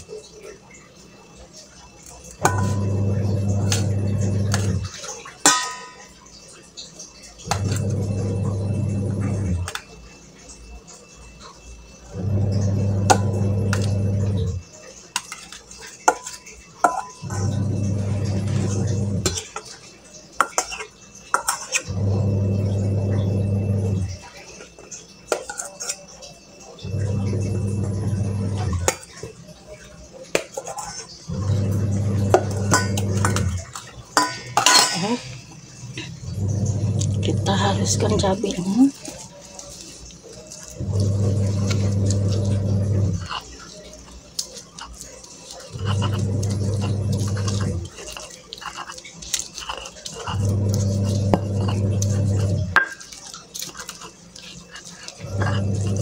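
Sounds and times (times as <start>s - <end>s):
kitchenware clinking: 0.0s - 56.0s
low buzzing hum: 2.4s - 5.0s, 7.4s - 9.7s, 12.1s - 14.6s, 17.2s - 19.4s, 21.9s - 24.2s, 26.8s - 28.9s, 31.3s - 33.7s, 35.8s - 38.3s, 40.8s - 43.3s, 50.3s - 52.8s, 55.2s - 56.0s
stone pestle grinding in mortar: 2.4s - 5.8s, 7.4s - 9.8s, 12.2s - 14.6s, 16.1s - 19.7s, 30.4s - 35.2s, 36.0s - 39.6s, 40.5s - 43.8s, 44.4s - 56.0s.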